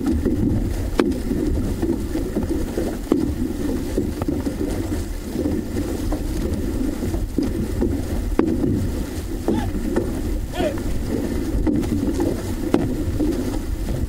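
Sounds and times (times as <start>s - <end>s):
paddles splashing water: 0.0s - 14.0s
water rushing along canoe hull: 0.0s - 14.0s
wind rumble on microphone: 0.0s - 14.0s.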